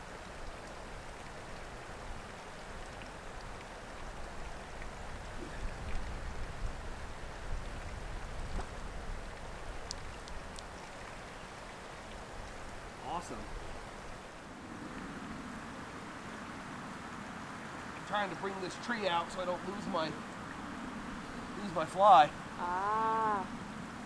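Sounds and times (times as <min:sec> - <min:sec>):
wind blowing across microphone: 0:03.3 - 0:10.9
faint clicks: 0:09.8 - 0:11.2.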